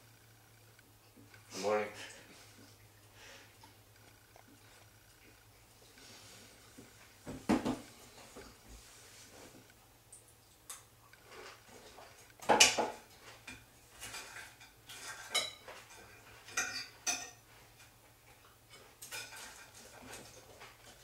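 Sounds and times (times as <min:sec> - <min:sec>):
cutlery clinking on dishes: 0:12.4 - 0:17.9, 0:18.7 - 0:20.4.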